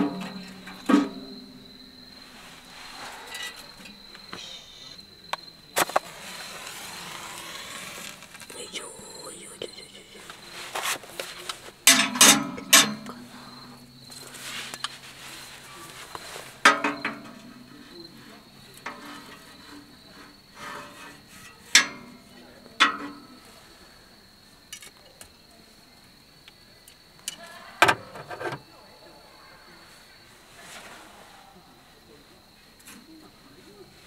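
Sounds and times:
fire tongs clanking on metal stove: 0:00.0 - 0:01.7, 0:11.8 - 0:14.9, 0:16.5 - 0:23.4
high insect trill: 0:00.0 - 0:34.0.

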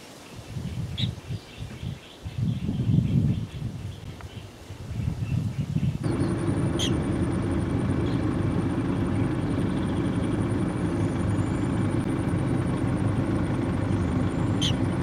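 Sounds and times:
high pulsing whine: 0:06.0 - 0:15.0
steady low rumble: 0:06.0 - 0:15.0.

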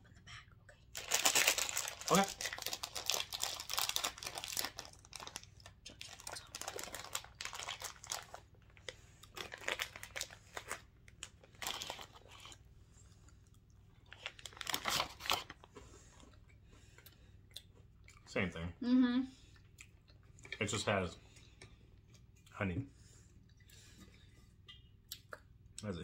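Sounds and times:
plastic wrapper crinkling: 0:00.9 - 0:12.5, 0:14.1 - 0:15.6
chocolates being crunched: 0:00.9 - 0:12.6, 0:14.1 - 0:15.7.

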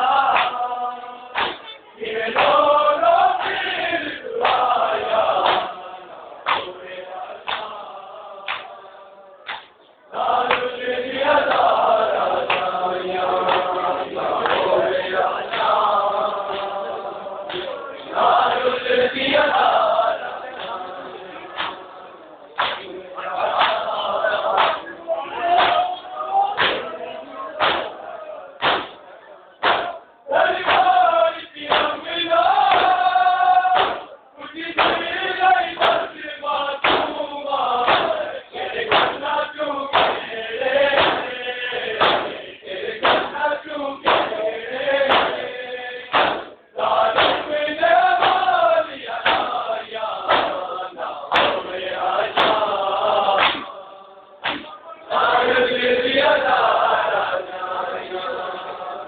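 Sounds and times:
men chanting in unison: 0:00.0 - 0:59.0
hands striking chests: 0:27.6 - 0:28.0, 0:28.6 - 0:29.0, 0:29.6 - 0:30.0, 0:33.7 - 0:34.1, 0:38.9 - 0:39.2, 0:40.9 - 0:41.3, 0:41.9 - 0:42.4, 0:43.0 - 0:43.4, 0:44.0 - 0:44.4, 0:45.0 - 0:45.4, 0:46.1 - 0:46.5, 0:47.2 - 0:47.5, 0:51.3 - 0:51.6, 0:54.4 - 0:54.8.

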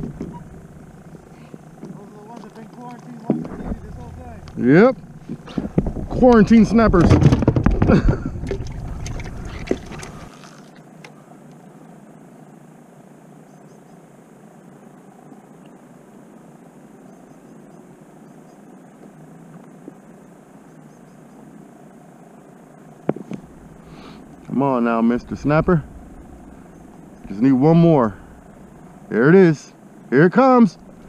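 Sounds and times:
plastic bucket lid clattering: 0:07.0 - 0:10.2
hiss of air and water: 0:23.4 - 0:29.6.

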